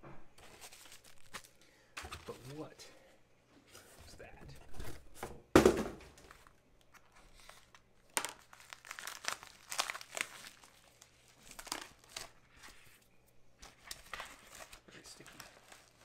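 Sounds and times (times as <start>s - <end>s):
bubble mailer crinkling and tearing: 0.4s - 1.6s, 6.3s - 12.9s, 13.6s - 16.0s
thump: 5.6s - 6.0s.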